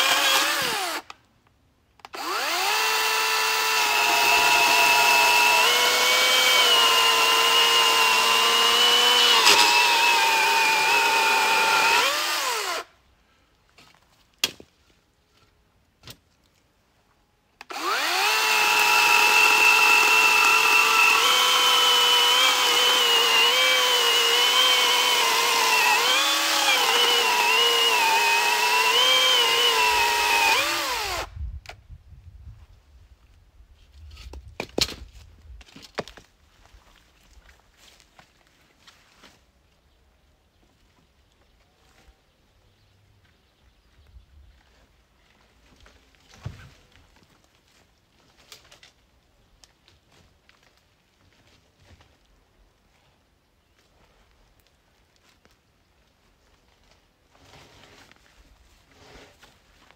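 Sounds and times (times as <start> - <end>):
electric chainsaw whining: 0.0 - 1.0, 2.1 - 12.9, 17.6 - 31.3.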